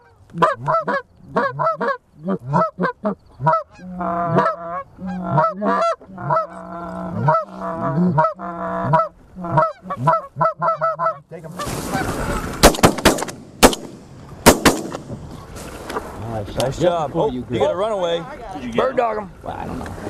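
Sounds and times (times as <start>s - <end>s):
goose honking and clucking: 0.0s - 12.6s.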